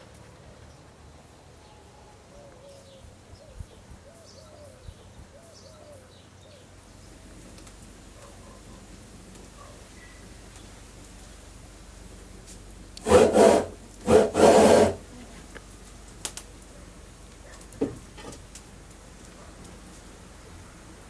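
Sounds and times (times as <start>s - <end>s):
rough scraping strokes: 13.0s - 15.1s.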